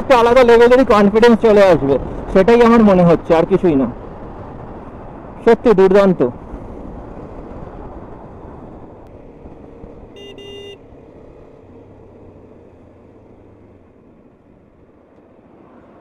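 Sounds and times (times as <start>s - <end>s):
wind rush: 0.2s - 10.0s
horn tooting: 10.2s - 10.8s.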